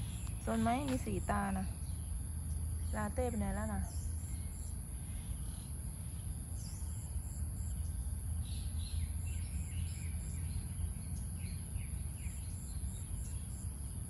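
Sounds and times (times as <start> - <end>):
bird chirping: 0.0 - 5.7.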